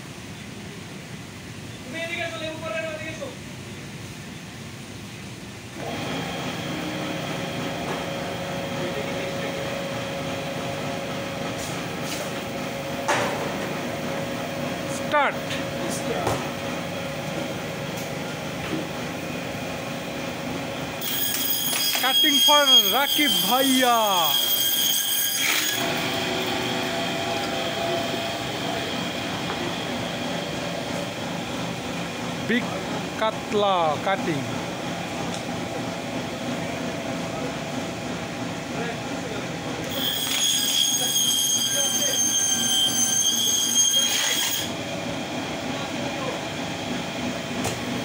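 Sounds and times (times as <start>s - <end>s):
band saw running: 5.8s - 18.2s, 19.4s - 34.5s, 39.8s - 48.0s
band saw motor whining: 21.0s - 31.8s, 39.9s - 44.8s.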